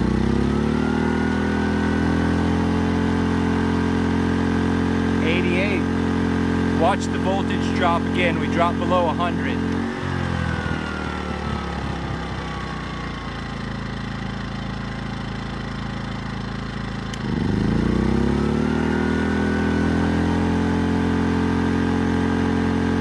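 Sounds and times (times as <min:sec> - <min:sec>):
generator engine running and revving: 0:00.0 - 0:23.0.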